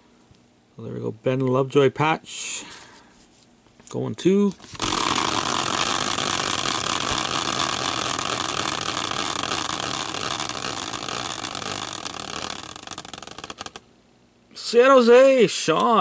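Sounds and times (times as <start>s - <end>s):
wheel whirring on its axle: 4.7s - 13.8s
wheel ticking: 4.8s - 13.8s.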